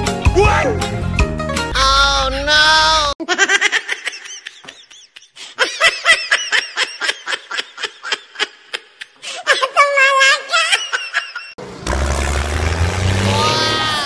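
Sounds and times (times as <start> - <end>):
background music: 0.0 - 3.1
high-pitched laughter: 3.2 - 11.5.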